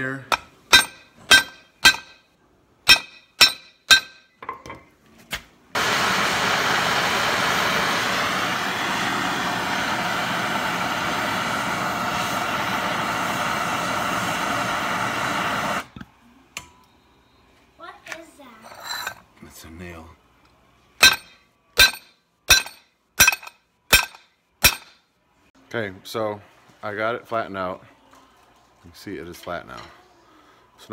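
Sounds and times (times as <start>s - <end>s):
hammer ringing on anvil: 0.3s - 2.2s, 2.9s - 4.4s, 21.0s - 25.0s
gas torch hissing: 5.8s - 16.0s.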